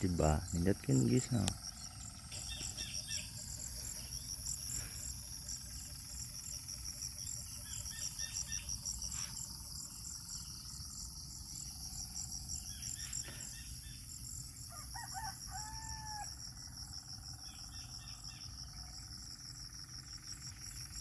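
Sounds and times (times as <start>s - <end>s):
high-pitched insect calls: 0.0s - 21.0s
rooster crowing: 14.6s - 16.4s.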